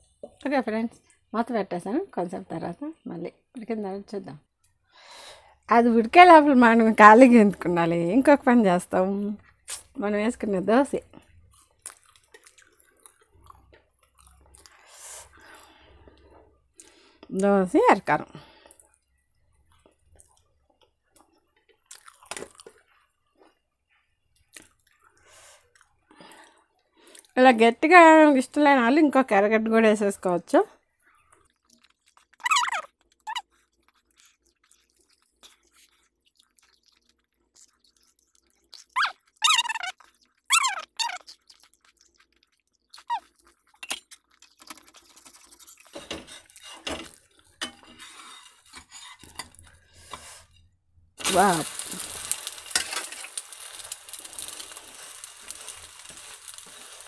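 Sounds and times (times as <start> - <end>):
person chewing: 11.2 - 17.2, 19.7 - 23.6, 24.4 - 26.4, 31.1 - 47.6, 51.7 - 57.0
wet mouth clicks and smacks: 11.8 - 12.9, 31.5 - 45.7
soft squelch of dipping food: 33.4 - 40.5
metal spatula scraping a pan: 45.9 - 50.6, 51.2 - 57.0
food sizzling on a pan: 51.2 - 57.0.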